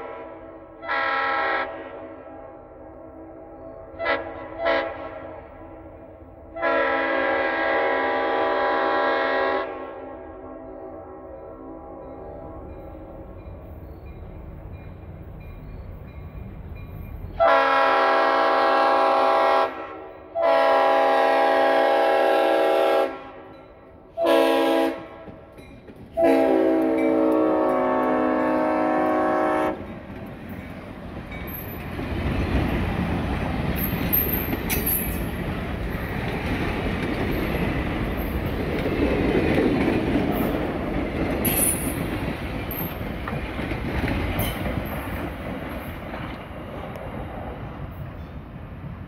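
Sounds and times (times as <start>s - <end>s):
locomotive horn blasts: 0.0s - 3.2s, 3.9s - 5.4s, 6.5s - 12.6s, 17.4s - 25.4s, 26.2s - 29.9s
train wheels rumbling on rails: 11.3s - 22.9s, 23.5s - 49.0s.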